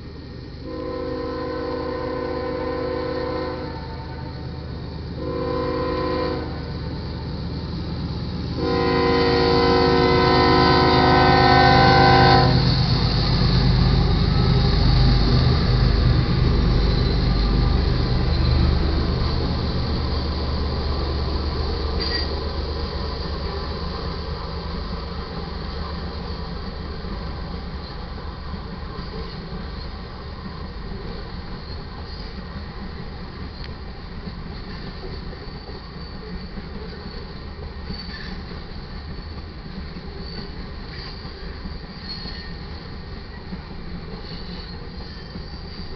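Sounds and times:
freight train rumbling past: 0.0s - 45.9s
train air horn blasts: 0.6s - 4.5s, 5.2s - 6.8s, 8.6s - 12.8s.

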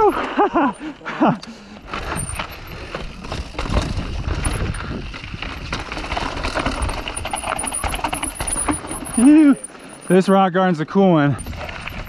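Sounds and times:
bike knocking and clattering: 1.8s - 10.3s
wind rumble on microphone: 2.1s - 7.4s.

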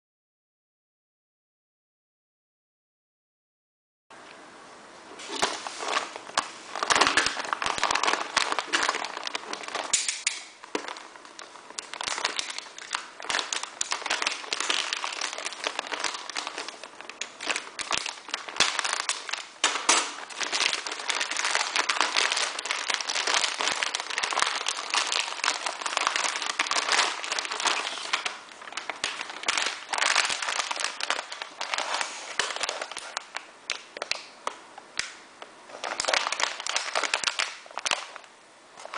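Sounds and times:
plastic packaging crinkling: 5.2s - 38.9s.

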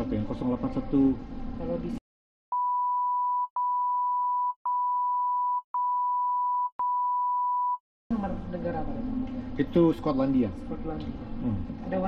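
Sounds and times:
censor bleep tone: 2.5s - 7.8s.

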